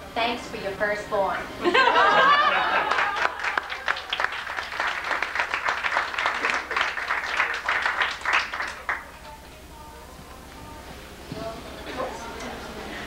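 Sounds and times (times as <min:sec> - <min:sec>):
crowd applauding: 0:02.3 - 0:09.2.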